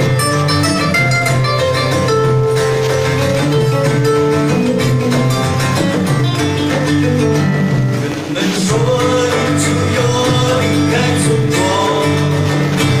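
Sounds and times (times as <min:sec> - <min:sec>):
acoustic guitars playing: 0:00.0 - 0:13.0.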